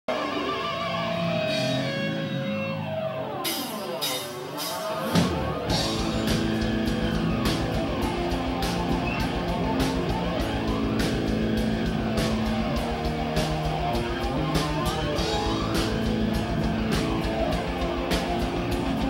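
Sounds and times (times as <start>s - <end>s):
electric guitar notes: 0.1s - 19.0s
cymbals: 3.4s - 19.0s
rapid kick-drum pulses: 4.2s - 19.0s.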